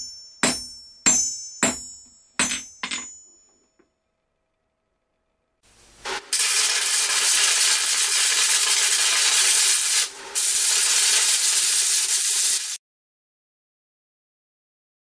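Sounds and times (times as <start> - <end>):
loud steady hiss: 5.7 - 12.8.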